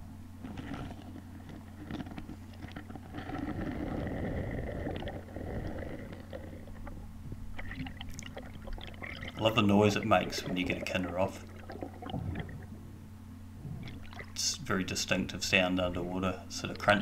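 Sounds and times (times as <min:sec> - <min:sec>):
steady low hum: 0:00.0 - 0:17.0
underwater crackling and scraping: 0:00.4 - 0:12.9, 0:13.6 - 0:14.4.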